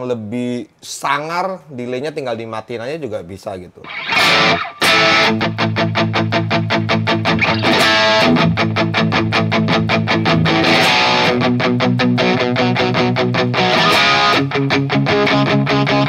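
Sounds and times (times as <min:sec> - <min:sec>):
electric guitar picked chords: 0:03.9 - 0:16.0.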